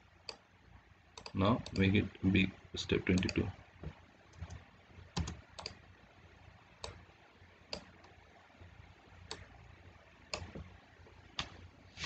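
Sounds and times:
computer mouse clicks: 0:01.2 - 0:01.9, 0:03.1 - 0:04.6, 0:05.2 - 0:05.8, 0:06.8 - 0:07.0, 0:07.7 - 0:08.2, 0:09.3 - 0:09.5, 0:10.3 - 0:10.7.

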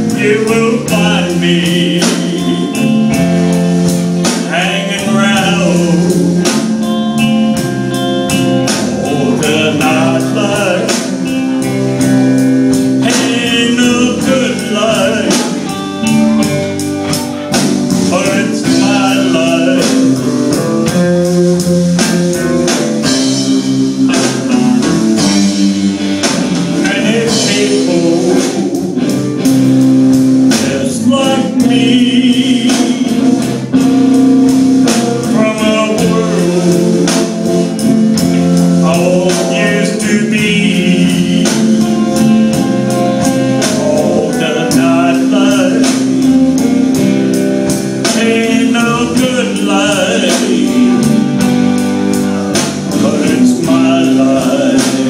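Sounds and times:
man singing: 0:00.0 - 0:29.9, 0:30.5 - 0:55.0
drum kit beat: 0:00.0 - 0:55.0
electric guitars: 0:00.0 - 0:55.0.

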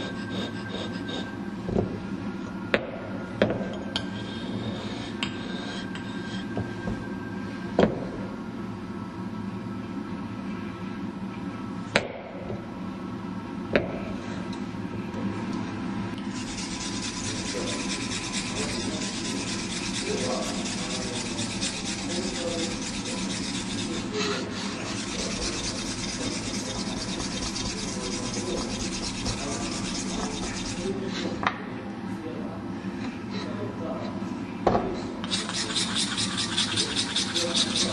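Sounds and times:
tool scraping wet stone: 0:16.4 - 0:31.0, 0:35.3 - 0:37.9.

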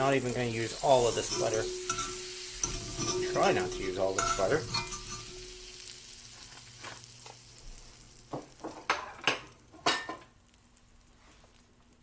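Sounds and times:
butter sizzling in a pan: 0:00.0 - 0:12.0
metal utensil scraping cast iron: 0:00.8 - 0:05.9.

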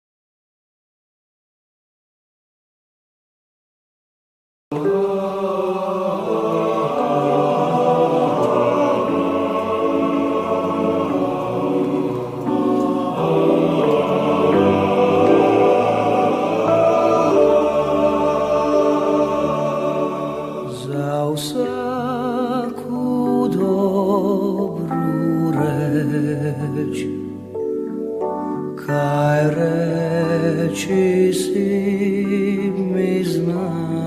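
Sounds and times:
choir singing sustained chords: 0:04.7 - 0:34.0.

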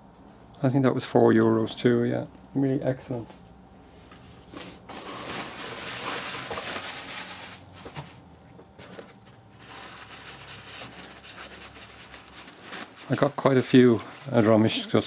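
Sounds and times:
paper wrapping rustling: 0:04.9 - 0:15.0.

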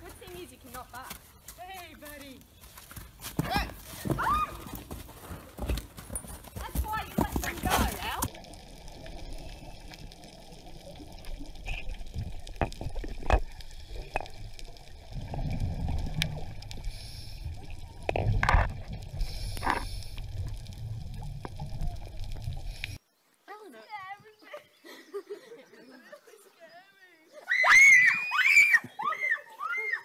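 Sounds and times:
bubbles gurgling underwater: 0:08.3 - 0:23.0
low underwater rumble: 0:08.3 - 0:23.0.

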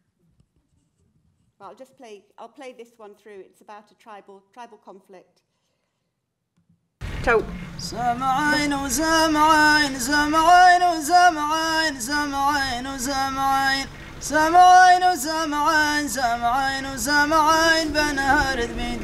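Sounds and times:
man singing unaccompanied: 0:07.7 - 0:19.0.

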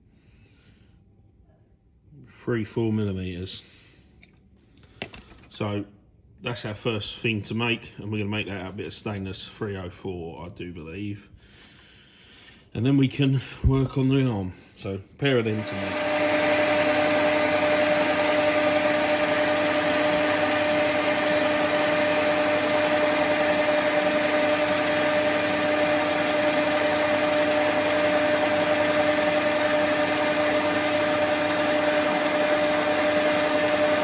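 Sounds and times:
metal lathe whining: 0:15.5 - 0:34.0.

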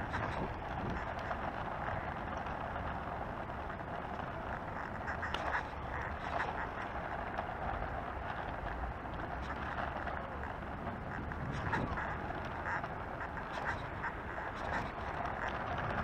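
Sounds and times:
scooter wheels rolling on asphalt: 0:00.0 - 0:16.0.

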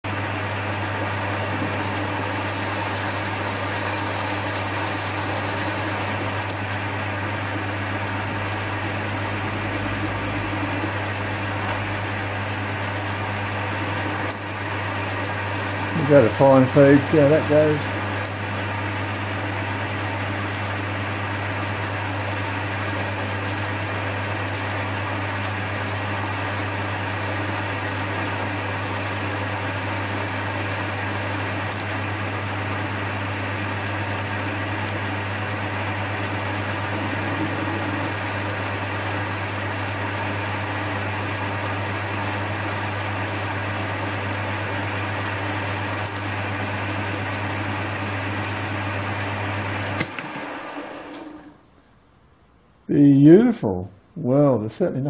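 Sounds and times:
metal lathe humming: 0:00.1 - 0:51.5
lathe tool cutting steel: 0:01.4 - 0:06.4, 0:08.1 - 0:18.3, 0:22.2 - 0:32.3, 0:34.1 - 0:48.6.

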